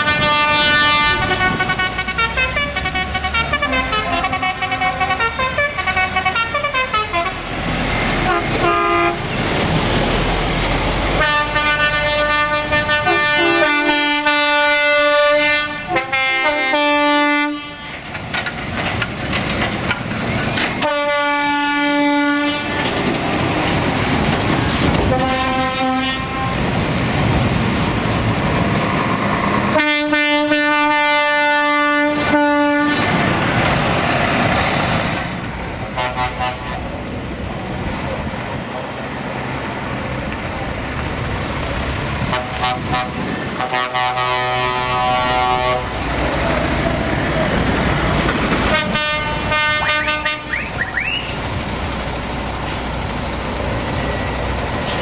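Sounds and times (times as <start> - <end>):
truck air horns: 0.0 - 9.4, 11.1 - 18.1, 20.8 - 23.0, 25.0 - 26.7, 29.7 - 33.2, 35.9 - 37.0, 42.3 - 46.3, 48.6 - 51.5
diesel trucks rumbling: 0.0 - 55.0.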